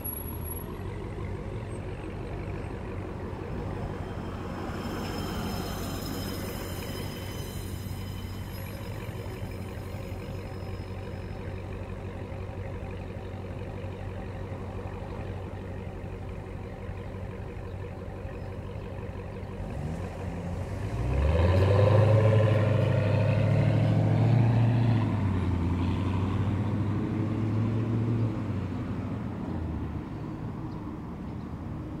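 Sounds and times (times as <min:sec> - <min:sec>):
car exhaust idling burble: 0:06.1 - 0:20.2
car accelerating away: 0:19.4 - 0:29.2.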